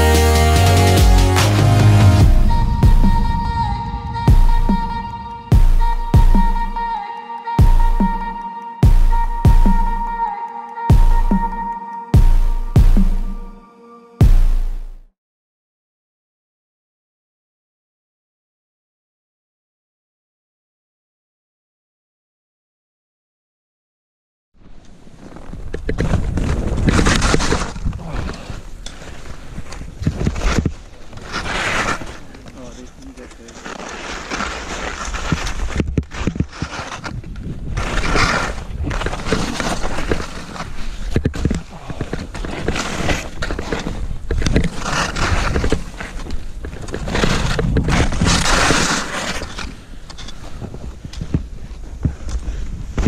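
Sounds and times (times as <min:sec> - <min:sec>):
skis scraping over snow: 0:24.7 - 0:53.0
wind rushing over microphone: 0:37.0 - 0:39.4, 0:43.3 - 0:49.8.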